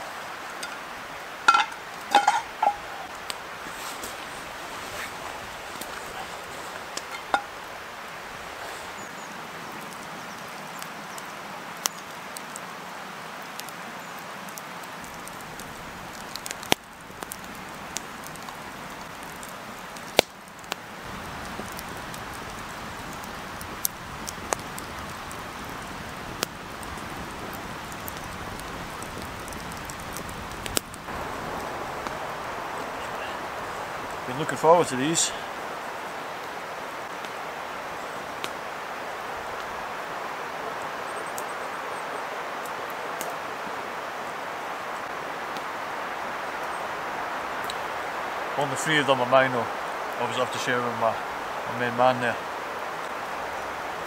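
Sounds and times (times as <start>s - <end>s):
sausages sizzling in a frying pan: 0.0s - 12.5s, 13.5s - 42.1s.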